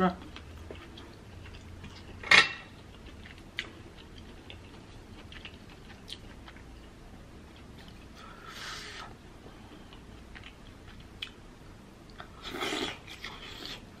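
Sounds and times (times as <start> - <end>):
faint clicks and wet sounds: 0.2 - 8.4, 9.0 - 11.4.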